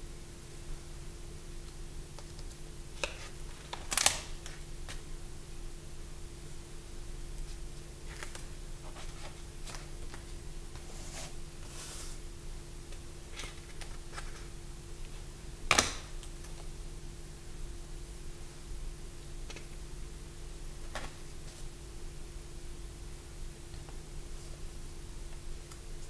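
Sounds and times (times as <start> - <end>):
steady low hum: 0.0 - 26.0
page flip: 2.2 - 5.0, 7.4 - 12.2.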